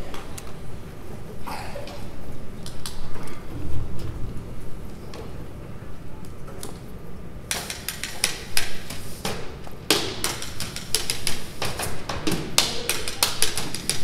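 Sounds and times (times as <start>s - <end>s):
percussion struck with sticks: 7.5s - 14.0s.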